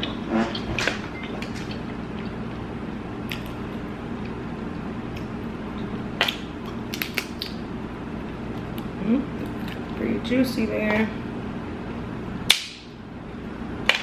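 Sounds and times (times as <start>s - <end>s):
steady low hum: 0.0s - 14.0s
crab shell cracking: 6.2s - 7.6s
wet squishes: 6.2s - 7.6s.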